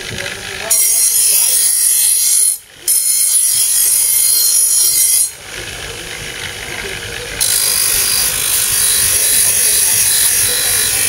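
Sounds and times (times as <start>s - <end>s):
knife blade on buffer wheel hissing: 7.4s - 11.0s.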